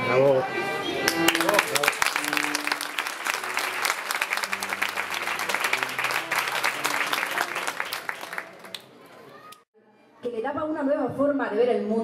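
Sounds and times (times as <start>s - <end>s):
crowd applauding: 1.1s - 9.6s.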